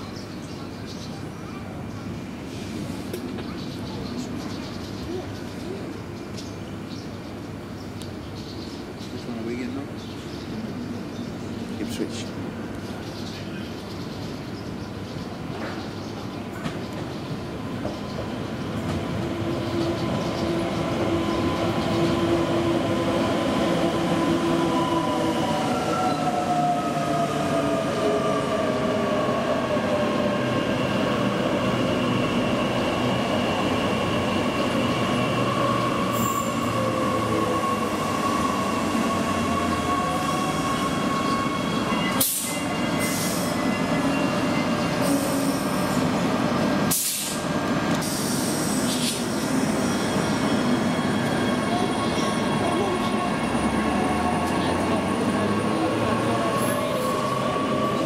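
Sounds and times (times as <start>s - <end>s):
train rumbling: 0.0s - 58.0s
train whining and squealing: 14.8s - 58.0s
sharp burst of hiss: 46.9s - 47.4s, 48.0s - 49.3s.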